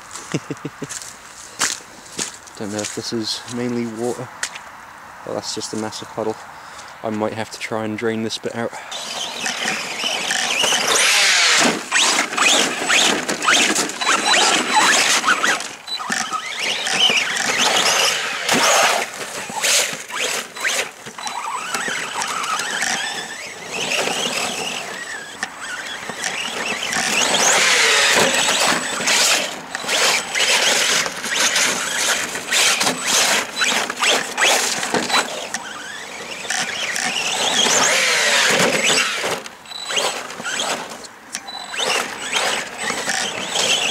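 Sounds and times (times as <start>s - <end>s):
rc truck motor whining: 8.8s - 43.9s
clicks and knocks over rough ground: 25.4s - 35.6s.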